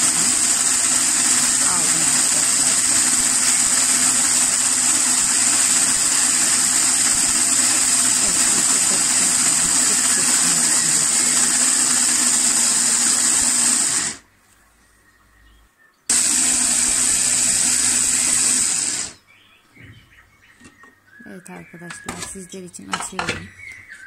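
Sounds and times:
food processor motor running: 0.0s - 14.2s, 16.1s - 19.2s.

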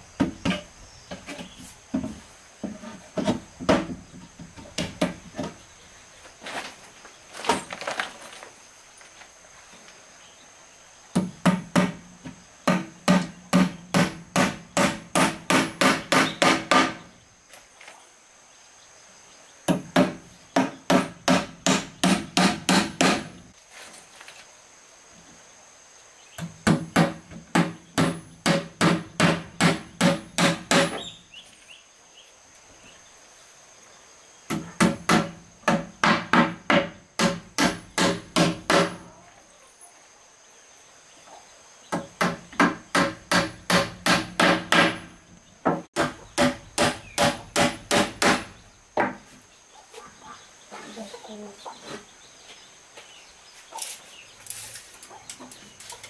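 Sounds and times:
hammer striking nails into wood: 11.2s - 12.0s, 12.6s - 17.0s, 19.7s - 23.4s, 26.4s - 31.0s, 34.5s - 39.0s, 41.9s - 45.1s, 45.7s - 48.5s.

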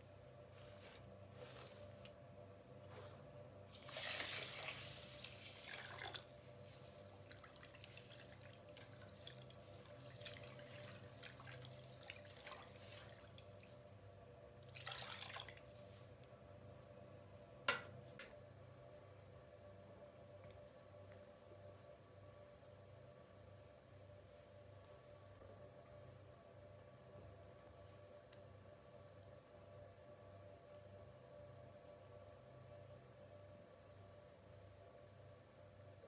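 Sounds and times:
water pouring into metal pot: 3.7s - 6.4s, 14.8s - 15.7s.

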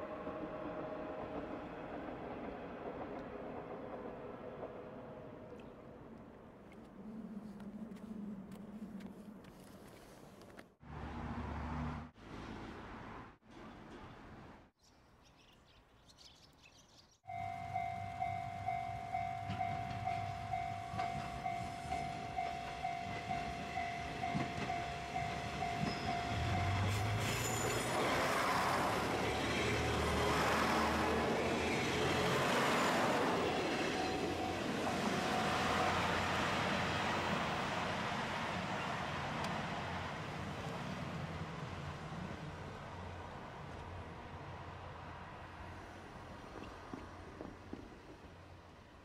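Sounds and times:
level crossing warning bell: 17.3s - 28.0s.

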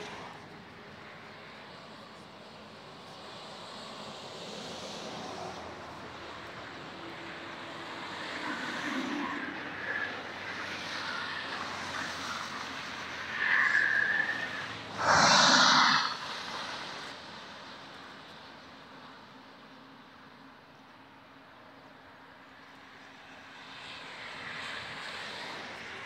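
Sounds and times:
highway traffic noise: 0.0s - 26.0s
loud burst of hiss: 14.9s - 16.9s.

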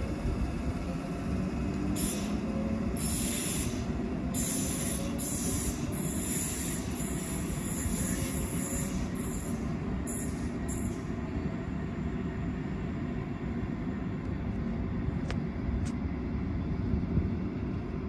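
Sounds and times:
train rumbling on track: 0.0s - 18.0s
train wheels squealing: 1.9s - 11.3s.

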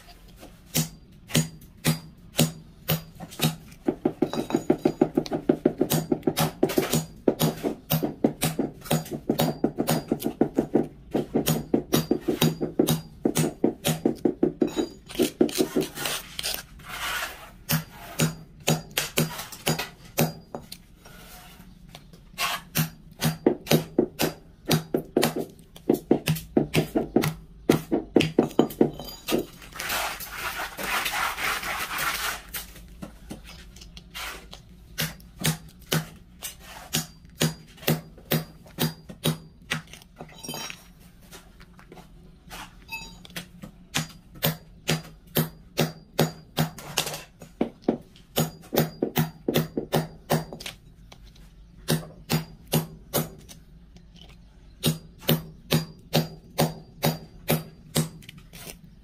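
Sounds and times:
scraping: 14.6s - 18.2s, 28.4s - 34.6s.

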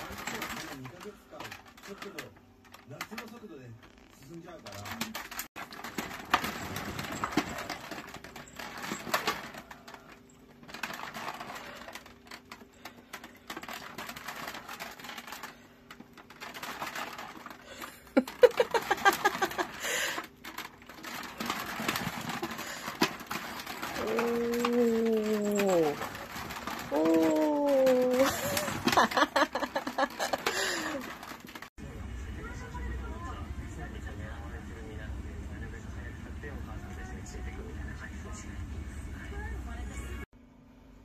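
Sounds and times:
cat wheel clattering and rattling: 0.0s - 31.7s.

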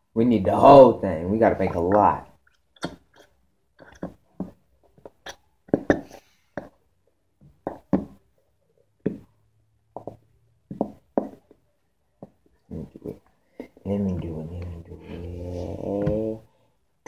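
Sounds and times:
glue bottle sputtering and squelching: 1.6s - 6.8s.

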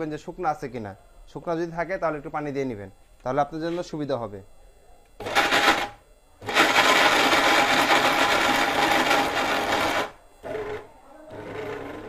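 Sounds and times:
mixer grinder motor: 5.2s - 12.0s.

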